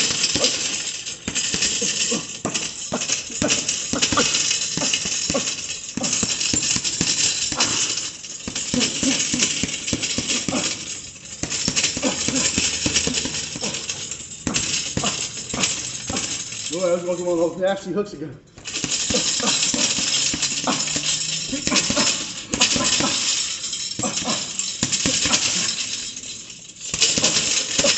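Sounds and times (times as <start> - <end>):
gloves punching a bag: 0.0 - 16.5, 18.6 - 25.7, 26.9 - 27.9
sharp exhaled breaths and grunts: 0.0 - 16.7, 18.7 - 26.1.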